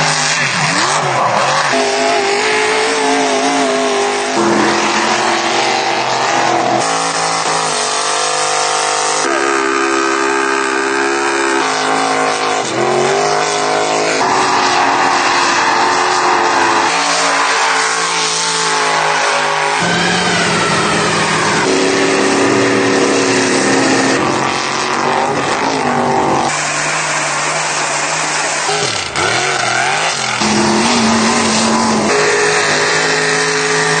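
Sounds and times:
truck engines revving in mud: 0:00.0 - 0:34.0.

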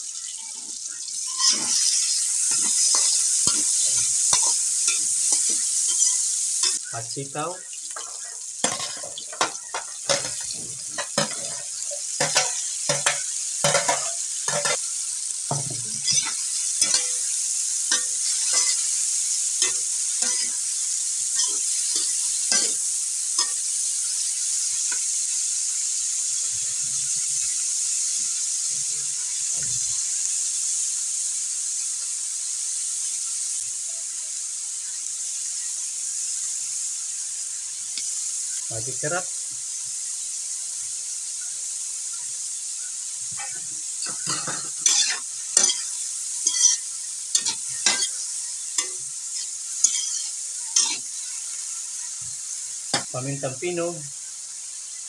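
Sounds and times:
beans sizzling in wok: 0:00.0 - 0:55.0
metal spatula scraping wok: 0:01.2 - 0:06.8, 0:07.9 - 0:14.8, 0:15.5 - 0:23.7, 0:43.4 - 0:51.2.

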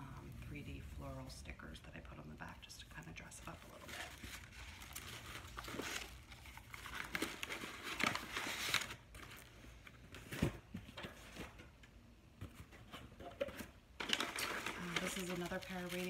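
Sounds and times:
tissue paper rustling: 0:03.4 - 0:09.6, 0:14.0 - 0:16.0.

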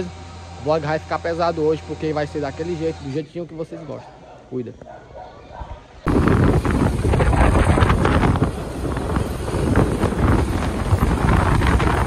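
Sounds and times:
wind buffeting microphone: 0:06.0 - 0:12.0
motorcycle engine rumble: 0:06.1 - 0:12.0.

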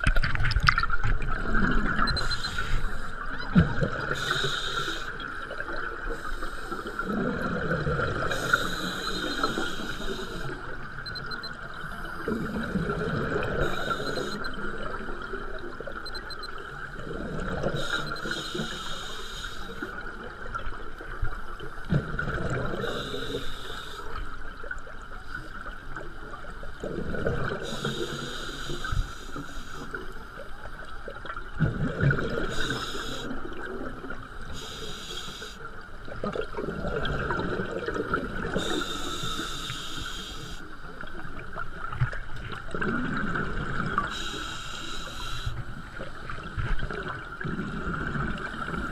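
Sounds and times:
exhale bubbling underwater: 0:00.0 - 0:25.0, 0:25.6 - 0:29.2, 0:29.9 - 0:48.9
regulator inhale hiss: 0:02.2 - 0:03.3, 0:04.1 - 0:05.2, 0:06.0 - 0:07.2, 0:08.3 - 0:10.7, 0:13.6 - 0:14.4, 0:17.7 - 0:20.0, 0:22.8 - 0:24.3, 0:27.6 - 0:30.2, 0:32.4 - 0:33.5, 0:34.5 - 0:35.7, 0:38.5 - 0:41.0, 0:44.0 - 0:46.1.

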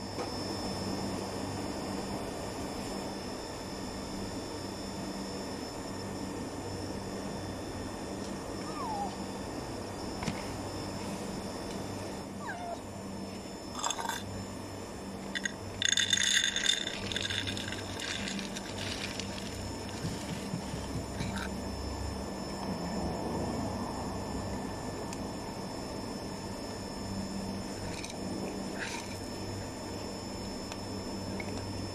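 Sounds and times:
low hum: 0:05.5 - 0:31.9
cat mewing: 0:08.6 - 0:09.3, 0:12.4 - 0:12.8
dry cat food rattling into bowl: 0:13.8 - 0:14.3, 0:15.3 - 0:21.5, 0:28.8 - 0:29.2.

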